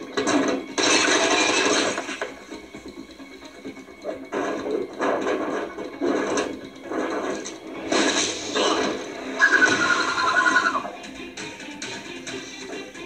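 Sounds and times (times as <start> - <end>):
noisy rushes and hits: 4.1 - 10.1.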